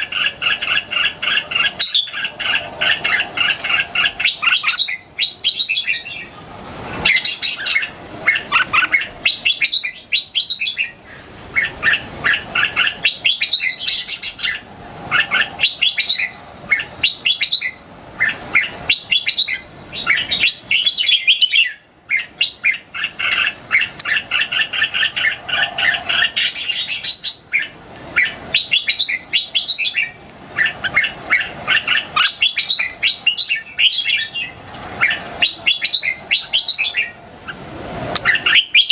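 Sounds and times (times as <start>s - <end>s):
bulbul singing whistled phrases: 0.0s - 6.4s, 7.0s - 37.2s, 38.2s - 38.9s.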